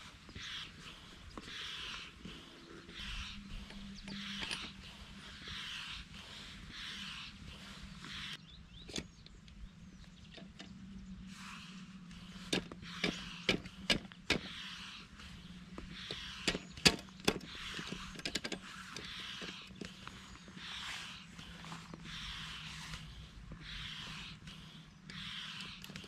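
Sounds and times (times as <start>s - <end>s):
hand pump hissing: 0.0s - 8.4s, 11.4s - 26.0s
kayak parts clicking and knocking: 12.5s - 14.5s, 15.8s - 20.0s.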